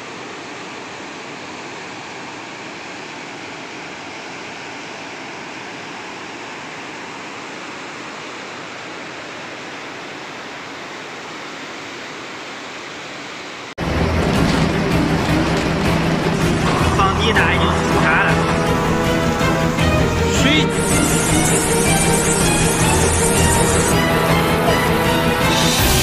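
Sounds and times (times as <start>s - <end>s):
floodwater rushing: 13.8s - 26.0s.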